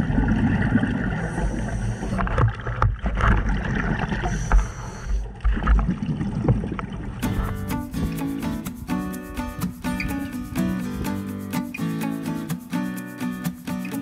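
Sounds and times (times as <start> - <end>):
gurgle of exhaled bubbles: 0.0 - 7.5
scuba regulator breathing underwater: 1.0 - 2.4, 4.1 - 5.4.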